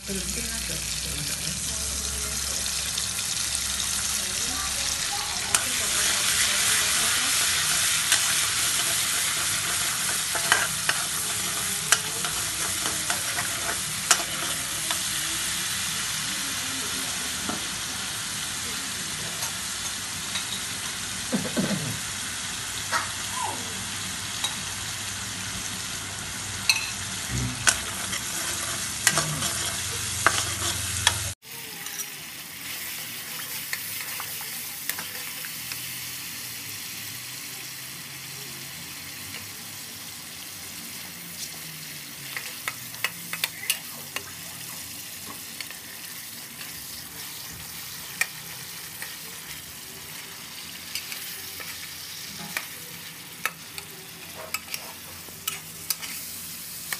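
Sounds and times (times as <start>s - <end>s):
sauce sizzling in a wok: 0.0s - 56.9s
spatula scraping metal pan: 5.5s - 15.1s, 27.5s - 32.0s, 53.4s - 56.4s.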